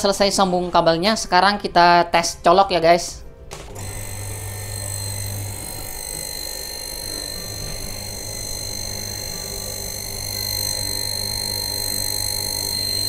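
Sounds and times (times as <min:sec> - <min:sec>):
electric water pump running: 0:03.5 - 0:13.0.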